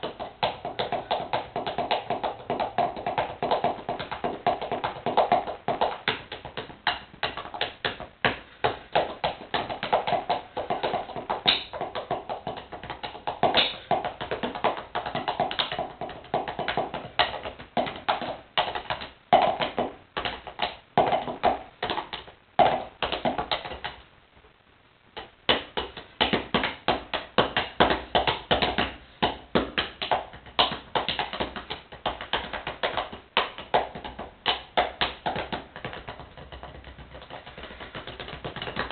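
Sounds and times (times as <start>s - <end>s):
drumsticks tapping on sneakers: 0.0s - 24.0s, 25.2s - 38.9s.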